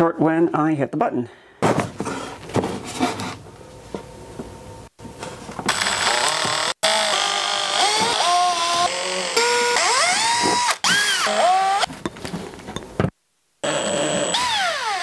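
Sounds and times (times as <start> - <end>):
electric drill motor whine: 5.7 - 11.9, 13.6 - 15.0.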